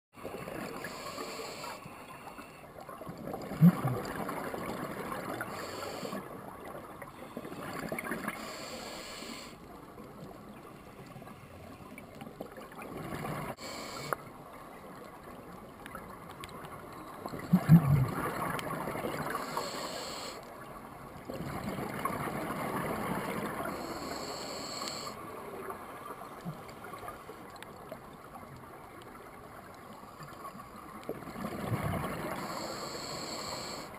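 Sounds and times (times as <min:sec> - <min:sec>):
regulator inhalation hiss: 0:00.7 - 0:02.6, 0:05.4 - 0:06.2, 0:08.4 - 0:09.6, 0:13.6 - 0:14.2, 0:19.3 - 0:20.4, 0:23.7 - 0:25.2, 0:32.4 - 0:33.9
underwater exhaled bubbles: 0:02.8 - 0:06.8, 0:15.8 - 0:19.7, 0:21.3 - 0:23.9, 0:30.2 - 0:33.9.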